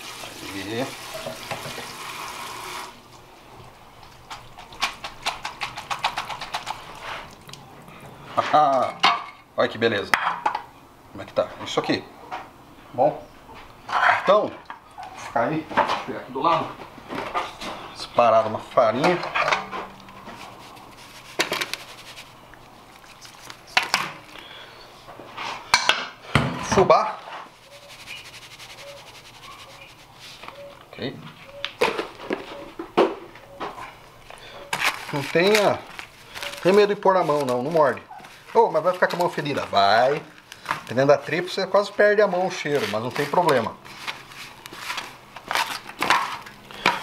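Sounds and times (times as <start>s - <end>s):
running tap water: 0.0s - 4.6s
scraping rustle: 19.6s - 24.2s, 27.2s - 30.6s, 34.7s - 46.5s.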